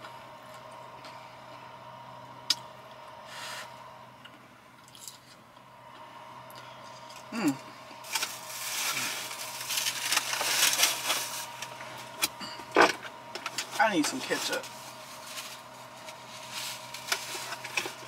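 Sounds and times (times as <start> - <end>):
food packaging crinkling: 8.0 - 11.8, 14.4 - 18.0.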